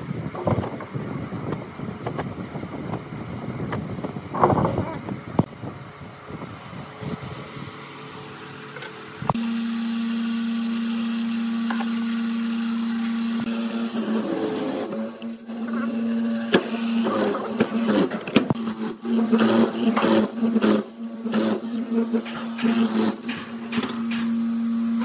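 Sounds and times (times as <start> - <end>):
electric motor humming: 9.3 - 25.0
chisel cutting wood: 17.0 - 22.0.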